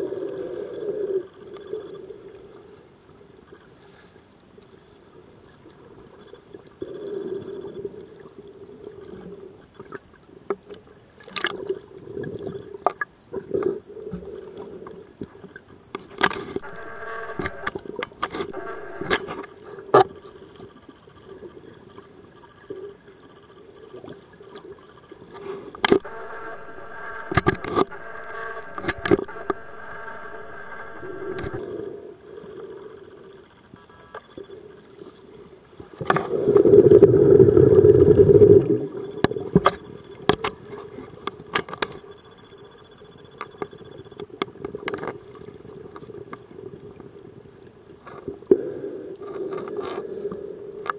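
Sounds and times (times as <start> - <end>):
droning hum: 16.4 - 19.6, 25.8 - 32.2.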